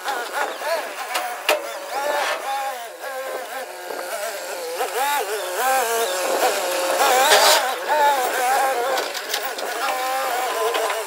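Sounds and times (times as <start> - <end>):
high-pitched engine revving: 0.0 - 11.0.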